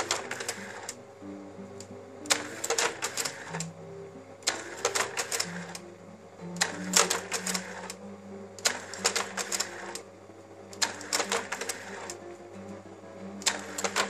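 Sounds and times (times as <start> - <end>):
slide projector changer clacking: 0.0 - 1.0, 1.8 - 3.8, 4.4 - 5.9, 6.5 - 8.0, 8.6 - 10.1, 10.7 - 12.4, 13.4 - 14.0
steady low hum: 0.0 - 14.0.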